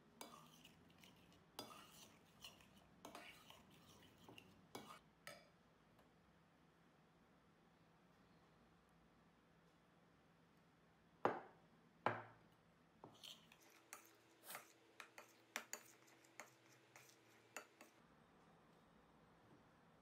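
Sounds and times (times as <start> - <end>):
spoon scraping glass bowl: 0.2 - 5.0, 13.1 - 18.0.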